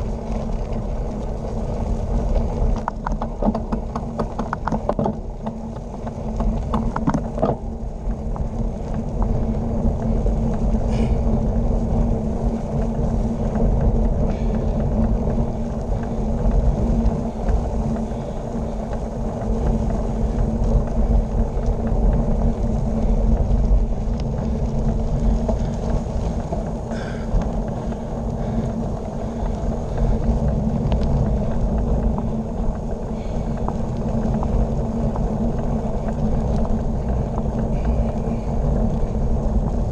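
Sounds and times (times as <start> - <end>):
bicycle tyres rolling on pavement: 0.0 - 39.9
wind buffeting microphone: 0.0 - 39.9.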